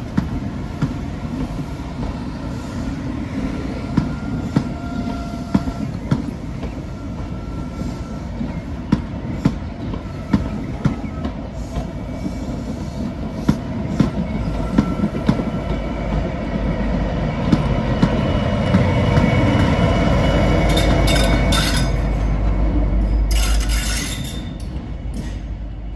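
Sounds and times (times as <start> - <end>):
diesel locomotive engine rumble: 0.0 - 25.9
train wheels clicking over rail joints: 17.4 - 22.4.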